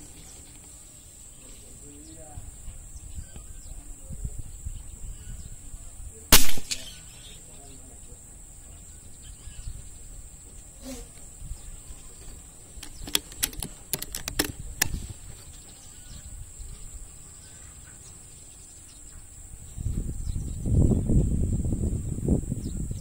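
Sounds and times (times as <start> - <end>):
high insect drone: 0.0 - 23.0
air rifle shot: 6.3 - 7.1
sharp clicks: 6.4 - 7.0, 12.8 - 15.0.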